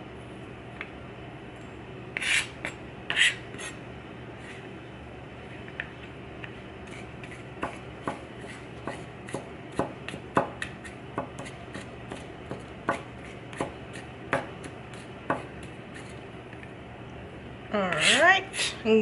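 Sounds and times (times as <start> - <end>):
knife chopping on plastic board: 7.6 - 15.7.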